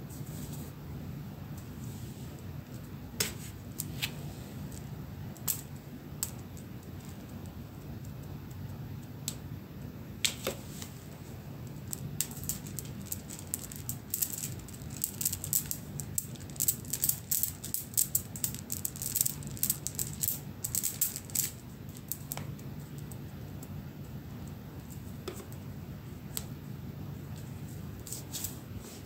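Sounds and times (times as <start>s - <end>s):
beads rattling and clicking: 11.8s - 23.2s.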